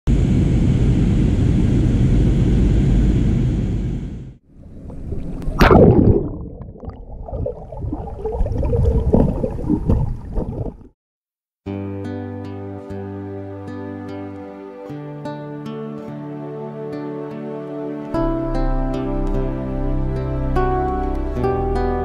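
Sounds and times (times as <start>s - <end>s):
airliner cabin roar: 0.1s - 5.6s
underwater bubbles gurgling: 4.7s - 10.9s.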